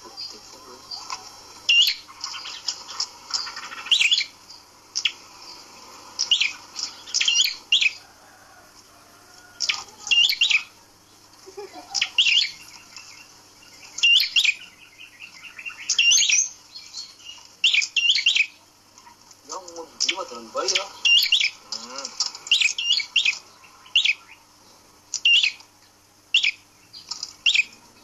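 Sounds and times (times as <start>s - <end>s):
songbird calling high notes: 0.0s - 5.6s, 6.2s - 8.0s, 9.6s - 10.8s, 11.9s - 18.6s, 19.6s - 24.5s, 25.1s - 25.6s, 26.3s - 27.8s.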